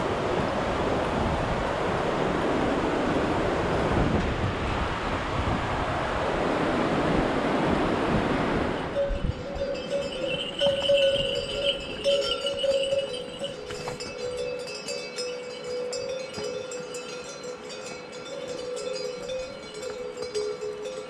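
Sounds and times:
yak bells ringing: 9.0s - 21.0s.

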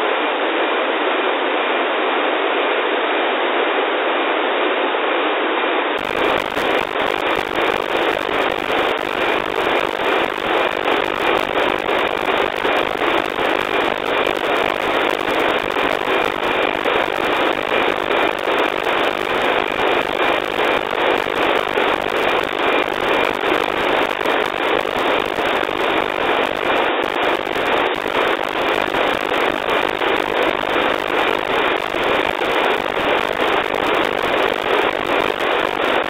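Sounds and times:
steady tone: 6.0s - 36.0s.

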